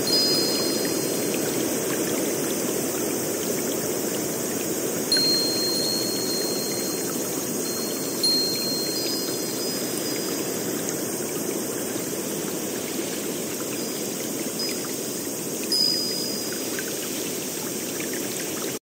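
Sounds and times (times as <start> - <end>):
running water rushing: 0.0 - 18.8
high-pitched whistles: 5.1 - 10.5.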